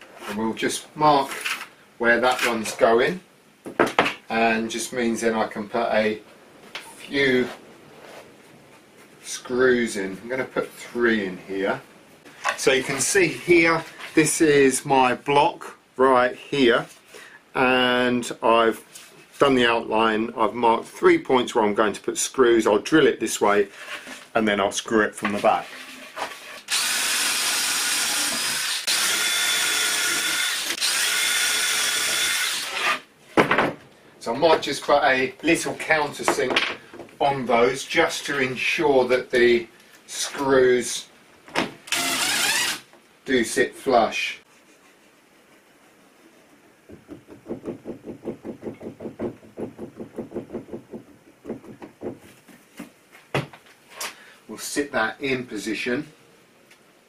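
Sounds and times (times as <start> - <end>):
cordless drill boring into wood: 26.7 - 33.0, 41.9 - 42.8.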